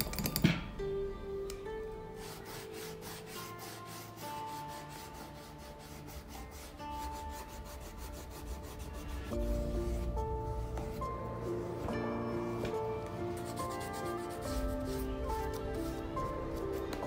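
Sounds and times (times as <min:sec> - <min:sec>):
soft background music: 0:00.0 - 0:17.0
brush scrubbing leather sole: 0:02.2 - 0:12.0, 0:13.4 - 0:17.0.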